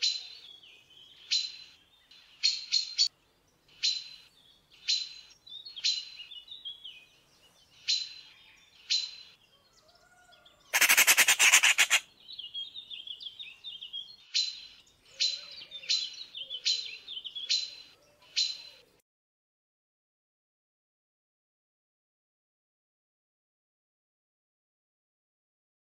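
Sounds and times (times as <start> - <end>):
soft bird twittering: 10.0 - 18.8
magpie rattling chatter: 10.7 - 12.0
magpies calling harshly: 10.7 - 12.1.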